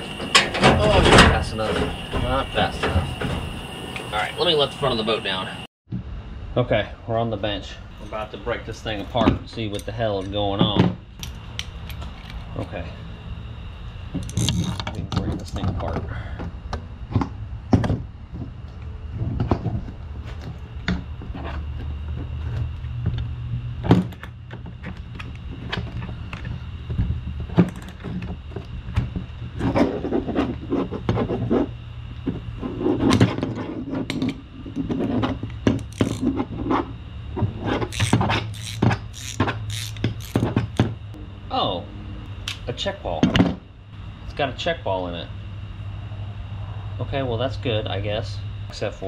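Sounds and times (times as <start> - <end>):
steady low hum: 0.0 - 49.0
tools clicking and knocking: 9.0 - 12.5, 35.5 - 36.3, 37.9 - 40.9.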